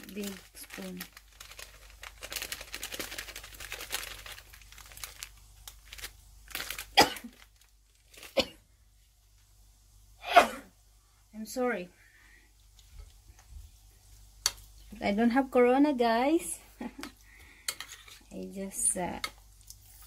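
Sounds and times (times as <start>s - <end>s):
foil packet crinkling: 0.0s - 8.5s
person coughing: 7.0s - 7.3s, 8.3s - 8.6s, 10.2s - 10.7s.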